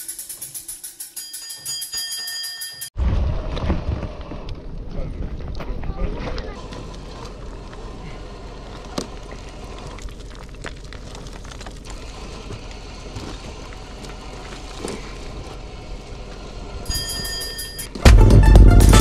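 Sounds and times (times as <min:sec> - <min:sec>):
steady noisy rumble: 0:03.0 - 0:16.9
stones knocking and scuffing: 0:05.2 - 0:15.4
music: 0:18.0 - 0:19.0.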